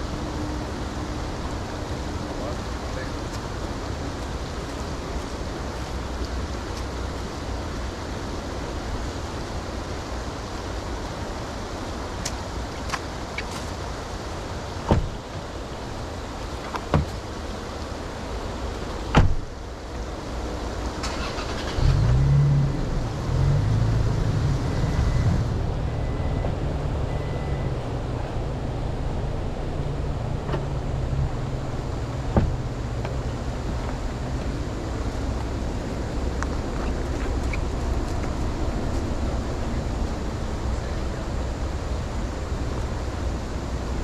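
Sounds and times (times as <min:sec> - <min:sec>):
car door shutting: 0:14.8 - 0:15.4, 0:16.6 - 0:17.2, 0:19.1 - 0:19.5, 0:30.4 - 0:30.7, 0:32.3 - 0:33.2
car engine starting and running: 0:20.8 - 0:43.1.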